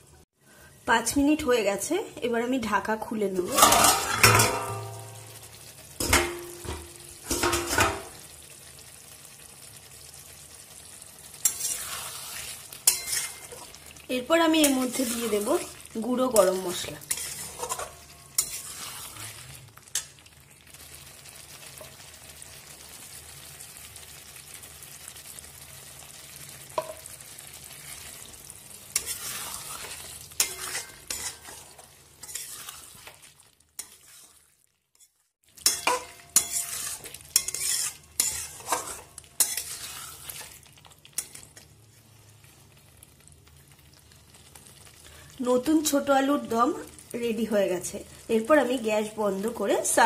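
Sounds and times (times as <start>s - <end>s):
curry sizzling in a pan: 0.0s - 50.0s
metal spatula scraping pan: 3.4s - 5.3s, 6.0s - 8.2s, 11.4s - 13.8s, 14.5s - 20.2s, 28.9s - 33.2s, 33.8s - 34.4s, 35.0s - 41.6s.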